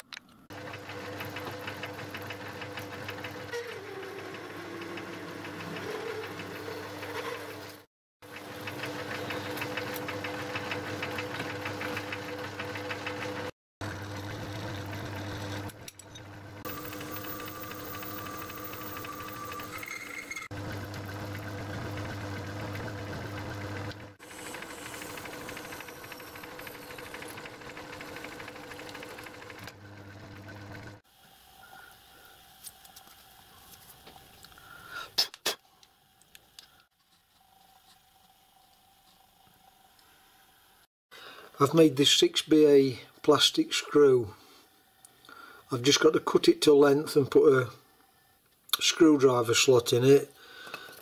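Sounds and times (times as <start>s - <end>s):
lathe motor hum: 0.5s - 31.0s
drill cutting rattle: 8.6s - 31.0s.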